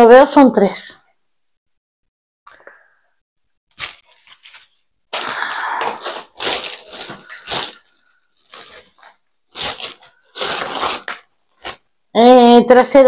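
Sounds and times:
plastic bags crinkling: 0:03.7 - 0:11.8.

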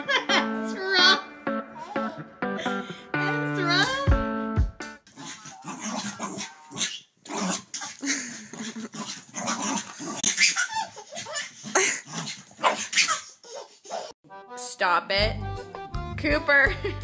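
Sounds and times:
small dog barking and growling: 0:05.1 - 0:08.0, 0:08.6 - 0:10.4, 0:11.6 - 0:13.0.

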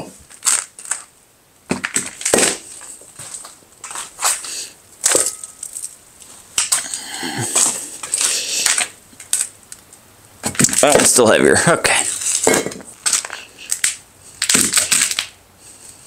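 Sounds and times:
concrete scraping and grinding: 0:11.9 - 0:13.6.

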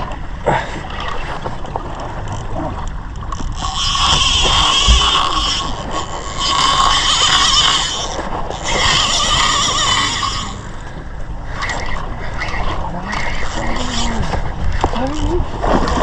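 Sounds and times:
sea noise: 0:00.0 - 0:16.0
wind: 0:00.0 - 0:16.0
fishing reel whining: 0:03.3 - 0:15.4.

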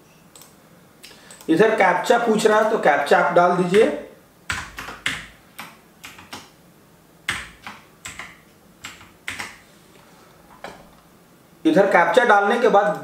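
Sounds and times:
typing on a keyboard: 0:04.5 - 0:06.5, 0:07.3 - 0:09.6.

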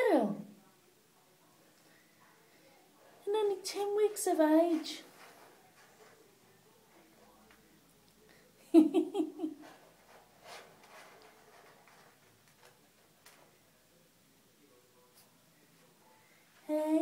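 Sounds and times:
kitten scraping in cat litter: 0:09.7 - 0:12.8.

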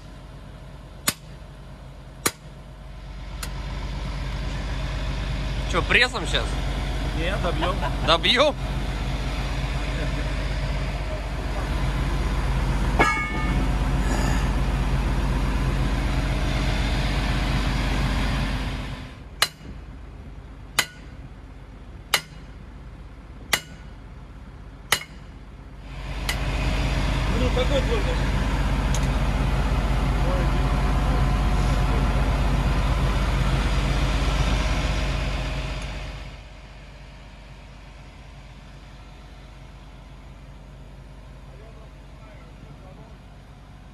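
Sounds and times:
heavy engine running: 0:00.0 - 0:43.9
sledgehammer striking steel: 0:01.0 - 0:01.4, 0:02.2 - 0:02.6, 0:13.0 - 0:13.7, 0:19.4 - 0:19.8, 0:20.8 - 0:21.2, 0:22.1 - 0:22.6, 0:23.4 - 0:24.0, 0:24.9 - 0:25.4
metallic clank: 0:13.0 - 0:13.8.

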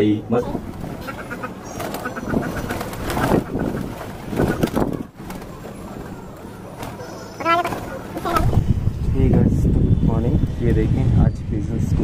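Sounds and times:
pigeons cooing: 0:00.5 - 0:08.8
wings flapping: 0:00.5 - 0:08.8.

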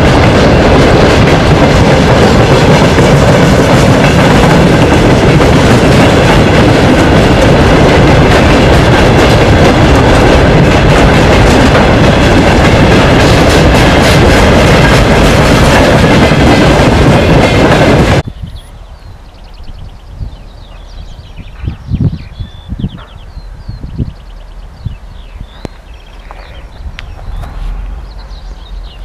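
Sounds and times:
steel wheels rumbling on rail: 0:00.0 - 0:29.0.

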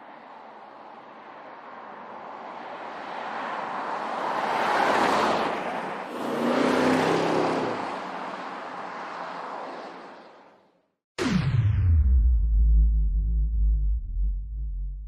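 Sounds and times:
tyre and road noise: 0:00.0 - 0:10.8.

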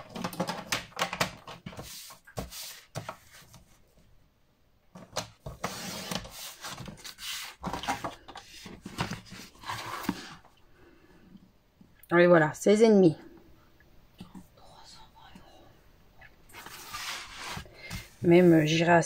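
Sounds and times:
paper rustling and rubbing: 0:01.6 - 0:03.8, 0:05.4 - 0:10.4, 0:16.5 - 0:18.8.

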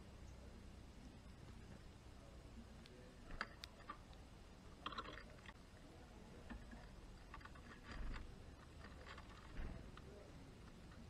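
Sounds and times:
birds pecking seeds clicks: 0:02.8 - 0:04.2.

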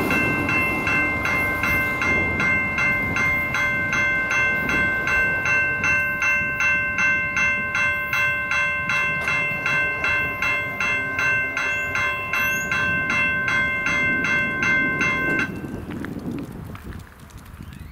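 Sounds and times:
crossing warning bell ringing: 0:00.0 - 0:15.9.

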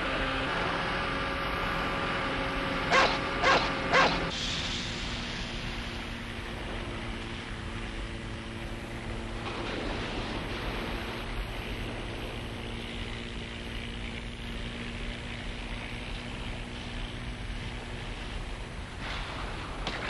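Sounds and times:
boat motor humming: 0:00.0 - 0:04.3.

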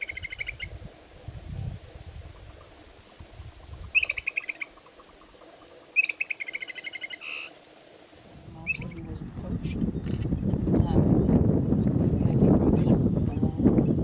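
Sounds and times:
songbird singing trills: 0:00.0 - 0:00.8, 0:03.4 - 0:07.5, 0:08.6 - 0:09.1.

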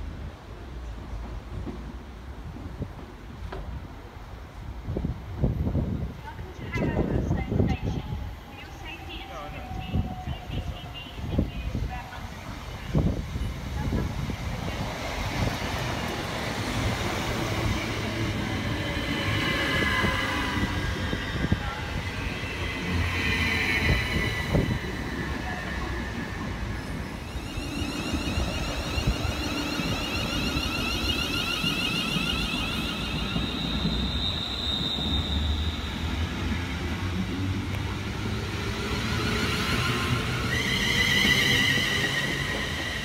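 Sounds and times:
train wheels rumbling: 0:04.8 - 0:43.0
high brake squealing: 0:17.4 - 0:36.6, 0:38.8 - 0:43.0.

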